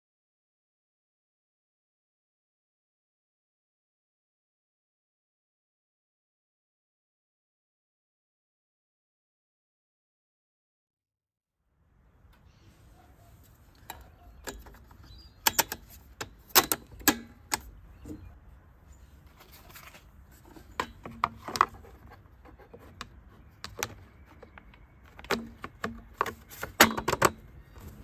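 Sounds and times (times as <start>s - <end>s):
plastic housing clicking and knocking: 13.7s - 18.3s, 19.5s - 28.0s.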